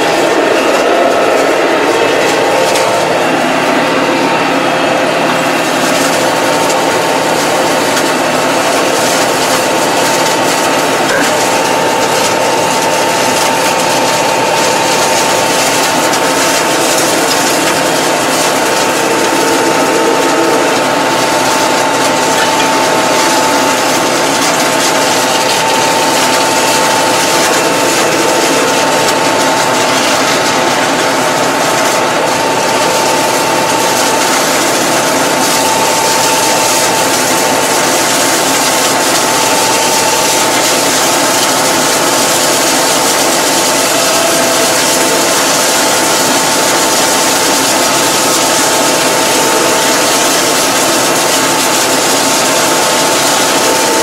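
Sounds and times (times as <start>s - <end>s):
high whine from drive: 0.0s - 54.0s
tractor engine running: 0.0s - 54.0s.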